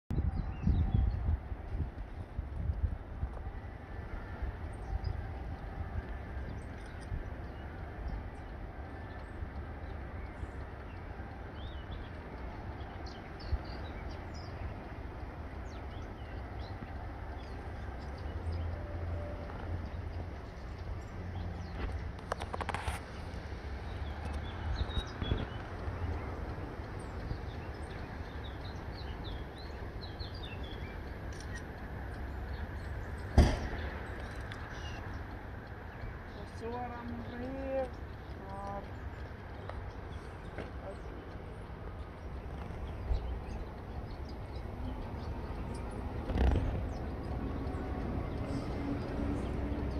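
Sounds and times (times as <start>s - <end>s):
steady low rumble: 0.1s - 49.9s
small birds chirping: 4.4s - 49.9s
sharp knock: 33.4s - 33.8s.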